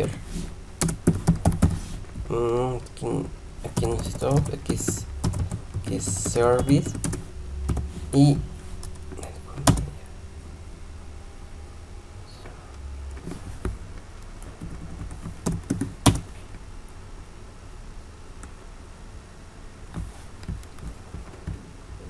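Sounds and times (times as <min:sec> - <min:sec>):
low background hum: 0:00.0 - 0:22.0
computer keyboard keystrokes: 0:03.8 - 0:07.8, 0:09.6 - 0:09.9.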